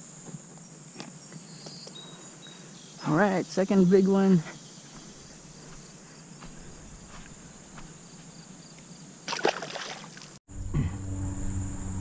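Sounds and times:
insects chirring: 0.0 - 10.4
fish splashing into water: 9.3 - 10.4.

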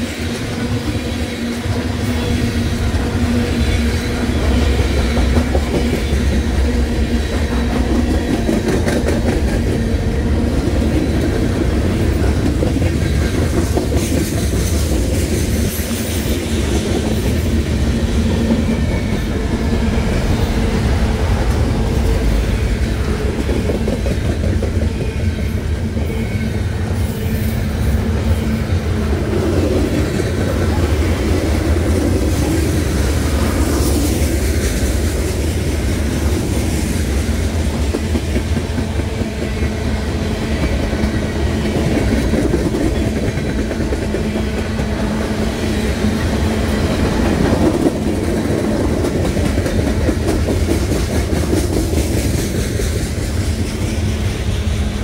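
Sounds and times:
freight train wheels rumbling on rails: 0.0 - 55.0
wheel clickety-clack: 4.4 - 9.9, 23.3 - 25.2, 40.6 - 45.0, 46.8 - 54.7.

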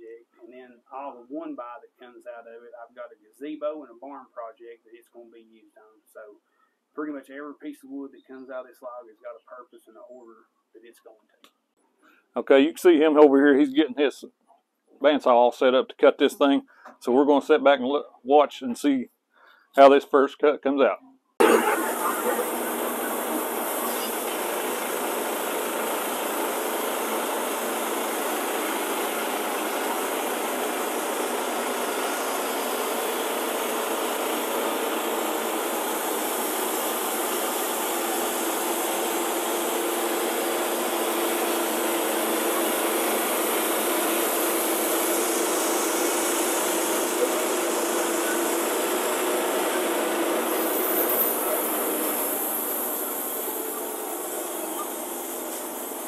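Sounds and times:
bandsaw sawmill cutting log: 21.4 - 56.0.

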